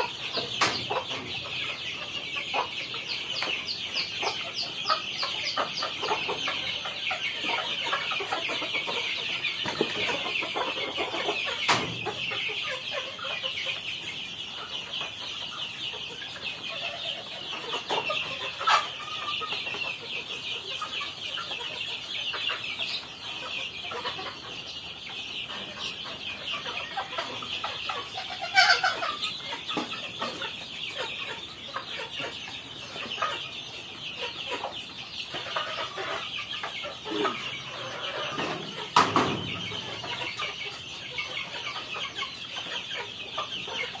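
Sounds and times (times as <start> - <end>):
young chickens clucking and peeping: 0.0 - 44.0.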